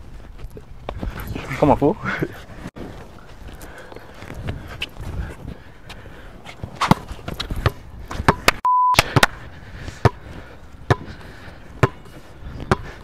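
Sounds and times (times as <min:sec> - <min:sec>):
basketball bouncing on court: 0:06.8 - 0:09.3, 0:10.9 - 0:11.1, 0:11.8 - 0:12.0, 0:12.6 - 0:12.9
censor bleep tone: 0:08.6 - 0:09.0.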